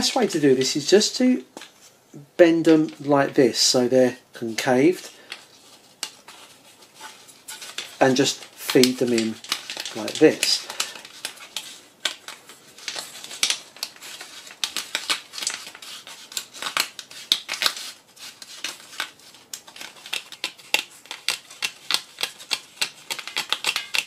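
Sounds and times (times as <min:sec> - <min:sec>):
card clicking and scraping on metal: 0:18.4 - 0:24.0.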